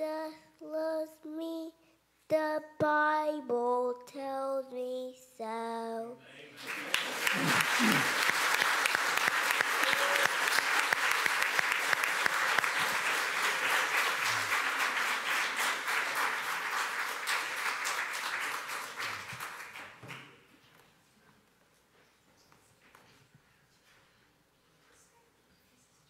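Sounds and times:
crowd applauding: 6.6s - 20.4s.

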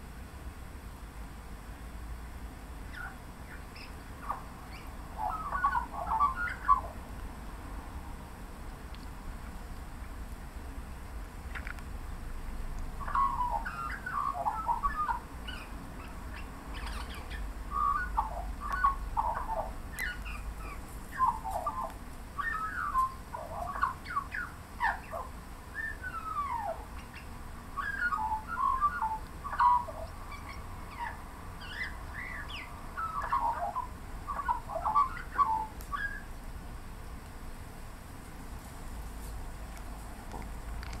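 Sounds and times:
magpie warbling song: 2.9s - 7.0s, 13.0s - 36.3s.

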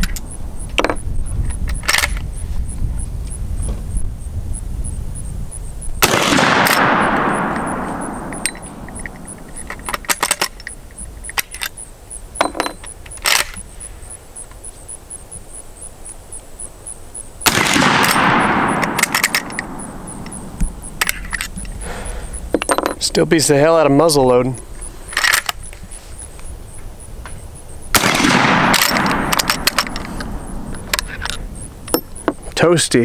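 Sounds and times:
metallic clicks of rifle lever: 1.5s - 2.3s, 6.2s - 11.8s, 12.5s - 13.6s, 17.6s - 20.4s, 21.0s - 21.8s, 25.1s - 25.8s, 28.1s - 32.2s
rifle shots with echo: 6.0s - 9.5s, 17.4s - 21.1s, 27.9s - 31.0s.

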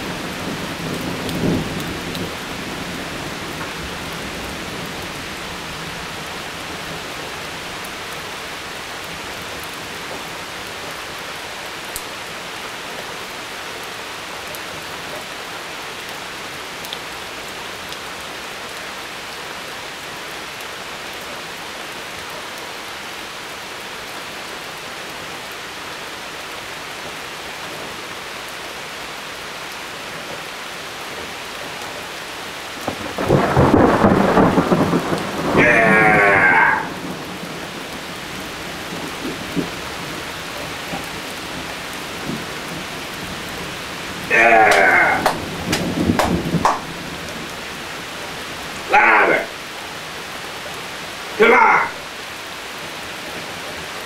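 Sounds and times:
rain hissing: 0.0s - 54.0s.

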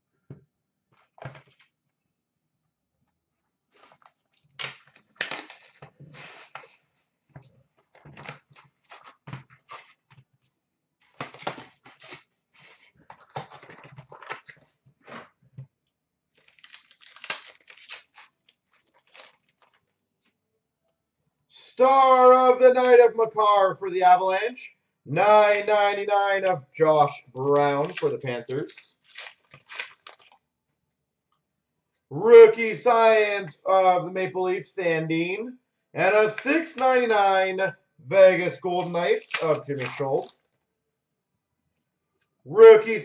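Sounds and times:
wrappers crinkling and tearing: 3.8s - 6.8s, 11.0s - 15.2s, 16.3s - 19.9s, 27.4s - 30.4s, 38.7s - 40.6s.

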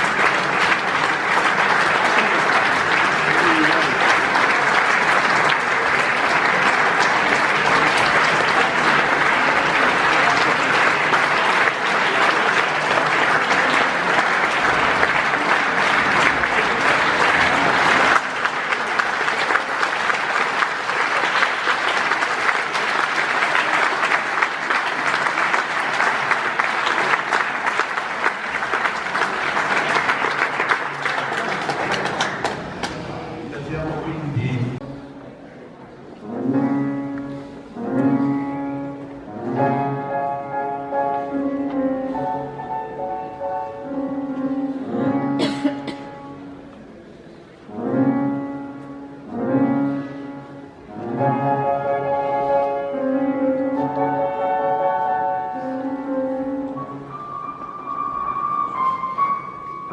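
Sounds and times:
audience applauding: 0.0s - 34.6s.

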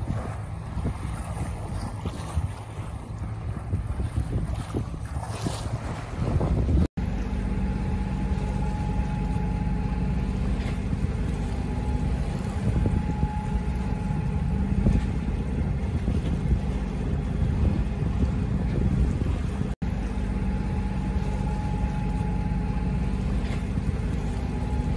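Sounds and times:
low rumble: 0.0s - 24.9s
water rushing past boat: 0.0s - 24.9s
wind: 0.0s - 24.9s
faint steady hum: 7.0s - 16.2s, 19.8s - 24.9s.

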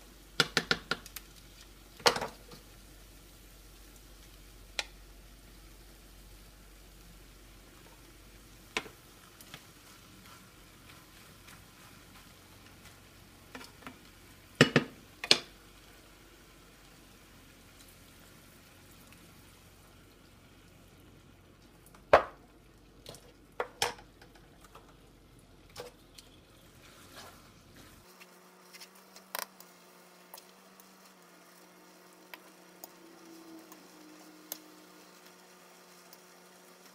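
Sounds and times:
light sizzling: 0.0s - 36.9s
utensils stirring noodles: 8.7s - 15.5s, 25.6s - 29.7s.

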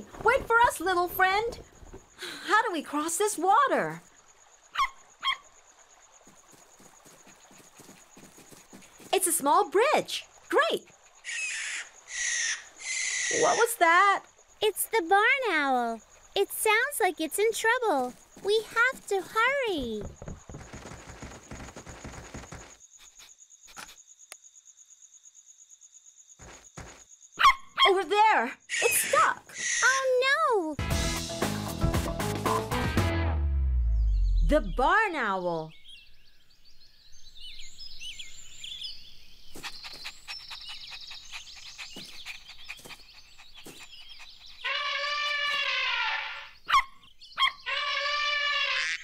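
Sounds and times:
crickets trilling: 0.0s - 30.7s, 35.0s - 49.0s
footsteps rustling through undergrowth: 6.2s - 9.4s, 17.5s - 19.6s
birds chirping: 6.2s - 22.8s, 34.0s - 48.4s
cartoon puppy call: 44.6s - 49.0s.

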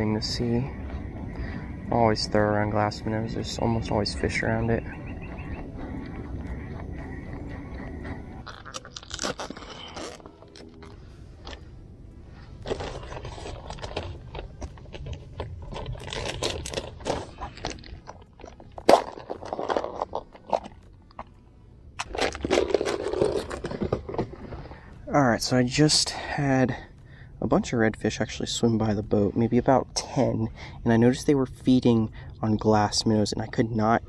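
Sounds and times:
scraping and crunching: 6.4s - 21.4s, 22.0s - 25.0s.

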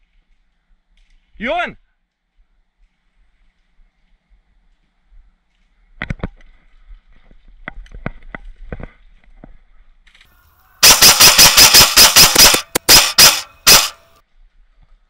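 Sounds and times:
airsoft rifle firing: 10.8s - 14.1s.

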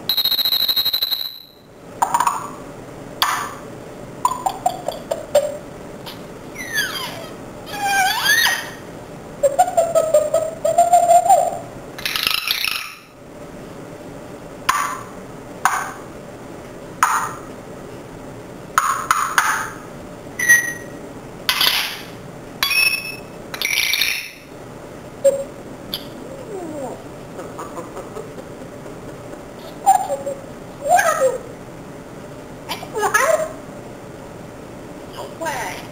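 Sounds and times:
parrot squawks and whistles: 6.5s - 8.8s, 20.4s - 21.0s, 22.6s - 24.4s
parrot warbling: 6.5s - 8.9s, 9.5s - 13.1s, 22.6s - 24.4s, 29.6s - 31.5s.

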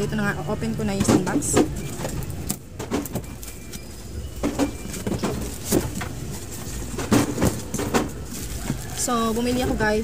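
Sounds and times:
cardboard box rustling and scraping: 2.9s - 10.0s.

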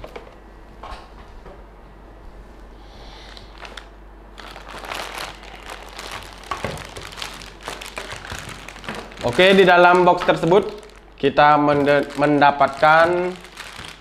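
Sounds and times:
plastic bag crinkling: 3.2s - 14.0s.

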